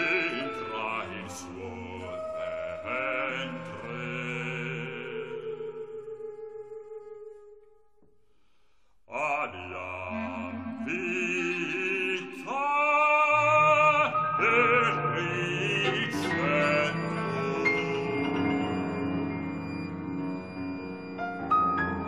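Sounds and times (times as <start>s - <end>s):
chamber ensemble sustained notes: 0.0s - 7.4s, 9.5s - 22.0s
bass voice singing: 9.1s - 19.0s.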